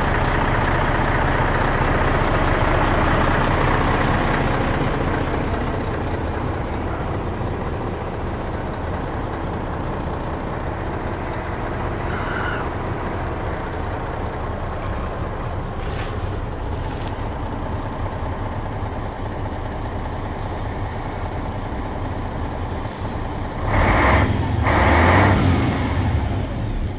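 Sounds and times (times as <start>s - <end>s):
diesel truck engine idling: 0.0s - 26.9s
truck engine revving: 22.2s - 26.9s.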